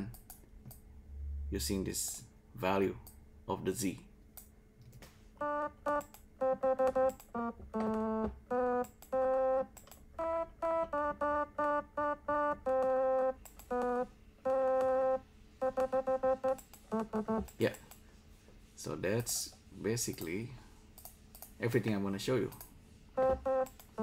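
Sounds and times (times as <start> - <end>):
synthesizer notes: 5.4 - 17.6, 23.2 - 24.0.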